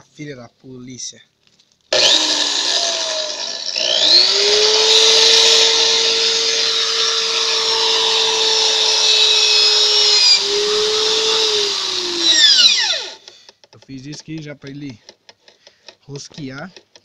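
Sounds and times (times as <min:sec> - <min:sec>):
electric drill motor whine: 0:01.9 - 0:13.2.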